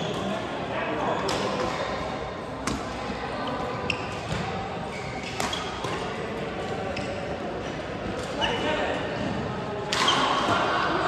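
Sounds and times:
shoe squeaks: 3.4s - 6.1s, 6.9s - 7.3s, 8.4s - 8.7s
rackets striking shuttlecock: 5.2s - 6.1s.

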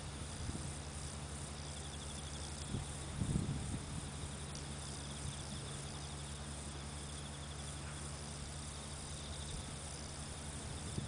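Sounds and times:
insects trilling: 0.0s - 11.0s
low steady hum: 0.0s - 11.0s.

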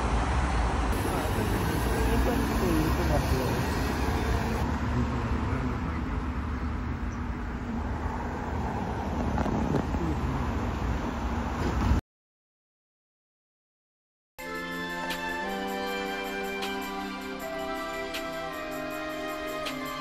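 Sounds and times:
street traffic rumble: 0.0s - 12.0s.

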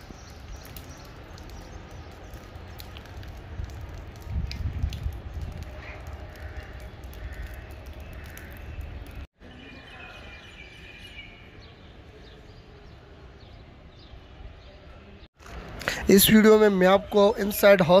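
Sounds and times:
birds chirping: 0.0s - 3.4s, 5.9s - 15.2s
wind rumble on microphone: 2.4s - 9.3s.

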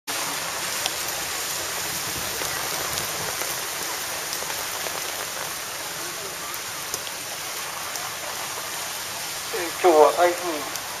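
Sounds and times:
heavy rain on an umbrella: 0.1s - 11.0s
sharp ticks of raindrops: 0.1s - 11.0s.

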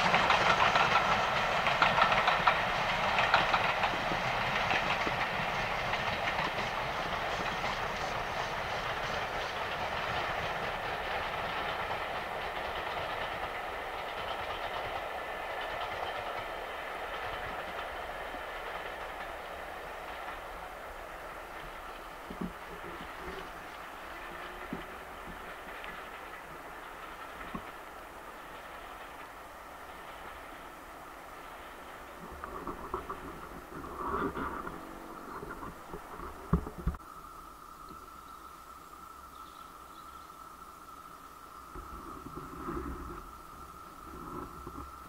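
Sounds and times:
wheels clattering over rail joints: 0.0s - 30.6s
steam train passing: 0.0s - 45.0s.

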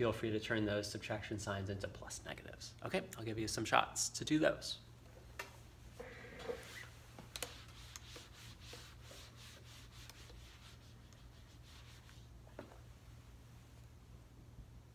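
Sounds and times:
eraser rubbing on whiteboard: 6.4s - 12.3s.

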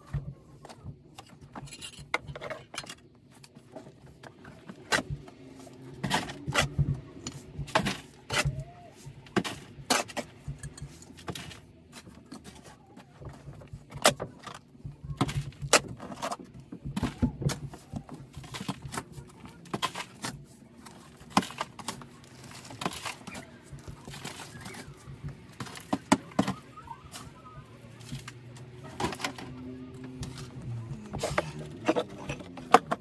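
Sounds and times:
digging tool clinking in stony soil: 9.4s - 12.6s.

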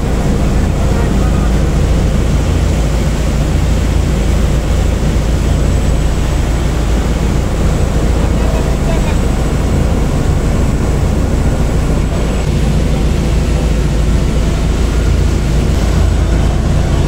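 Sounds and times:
boat engine droning: 0.0s - 17.0s
water rushing along hull: 0.0s - 17.0s.

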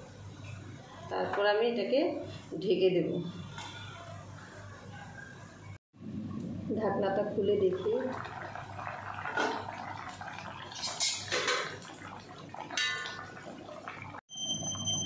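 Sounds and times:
curry boiling and bubbling: 6.0s - 15.0s.

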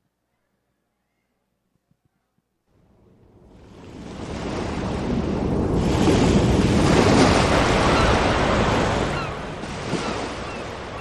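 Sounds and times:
ocean waves washing: 2.7s - 11.0s.

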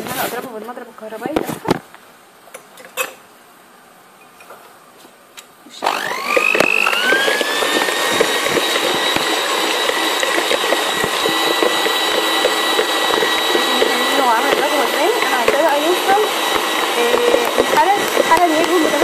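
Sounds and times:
electric hand mixer whining: 5.8s - 19.0s.

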